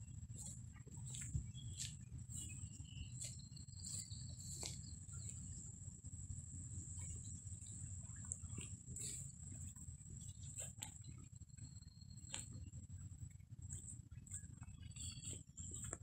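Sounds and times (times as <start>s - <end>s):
constant low rumble: 0.0s - 16.0s
steady high-pitched whine: 0.0s - 16.0s
footsteps crunching on gravel: 0.4s - 5.5s.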